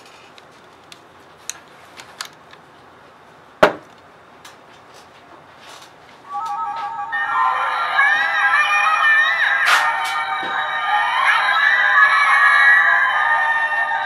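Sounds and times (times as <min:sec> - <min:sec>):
electronic beeping melody: 0:06.3 - 0:14.0.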